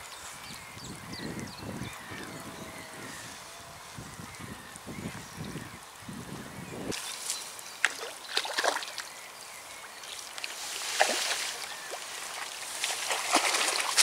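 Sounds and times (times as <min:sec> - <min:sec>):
fish thrashing and splashing: 0:07.8 - 0:09.0, 0:10.3 - 0:14.0.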